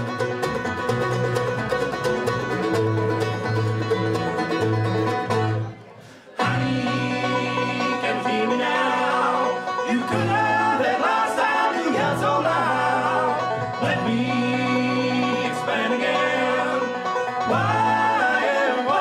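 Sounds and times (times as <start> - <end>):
bluegrass band playing: 0.0 - 19.0
person singing: 6.3 - 19.0.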